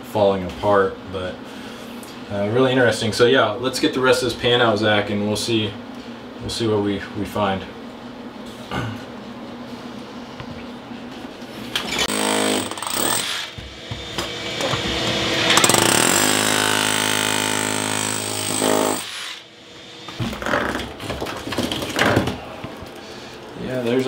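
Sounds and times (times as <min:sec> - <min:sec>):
rotary hammer chipping tile: 0:12.1 - 0:13.3, 0:15.6 - 0:19.1.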